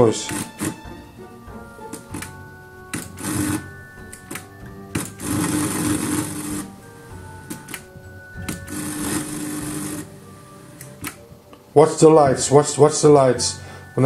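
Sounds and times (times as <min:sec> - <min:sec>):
static hiss with hum from speakers: 0:00.0 - 0:14.0
power button clicking: 0:01.9 - 0:05.4.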